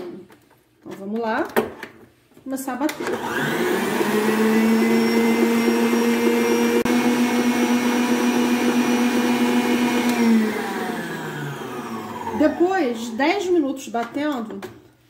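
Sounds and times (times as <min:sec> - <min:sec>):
stand mixer motor whining: 0:03.0 - 0:13.1.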